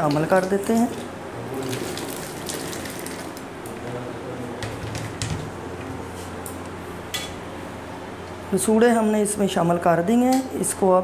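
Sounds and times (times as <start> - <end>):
water boiling and bubbling: 0.0 - 3.7.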